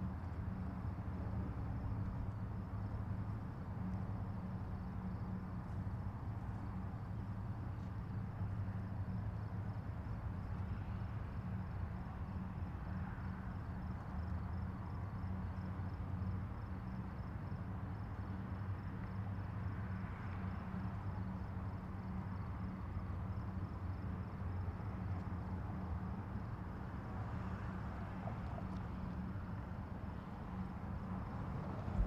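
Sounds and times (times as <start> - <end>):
diesel engine droning: 27.8 - 32.0.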